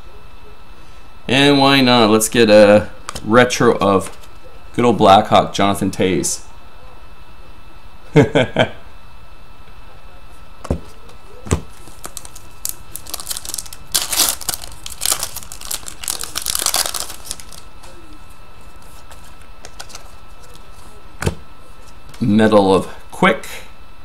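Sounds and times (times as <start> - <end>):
foil wrapper crinkling and tearing: 11.7 - 18.0.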